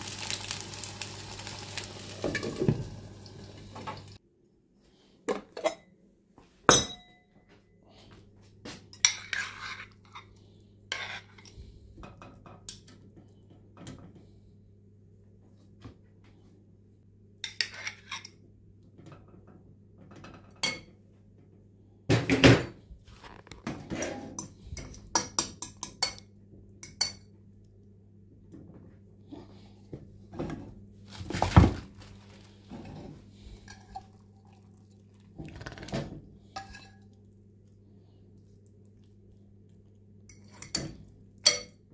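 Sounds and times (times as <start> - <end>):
fork scraping glass bowl: 9.1 - 10.3, 10.9 - 11.5.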